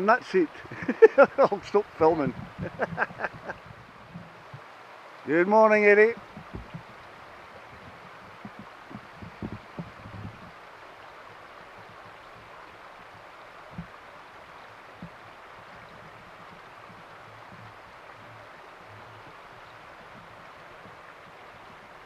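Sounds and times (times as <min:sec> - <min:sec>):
steady outdoor hiss: 0:00.0 - 0:22.0
soft low thumps: 0:02.1 - 0:04.7, 0:06.2 - 0:10.6, 0:13.7 - 0:14.0.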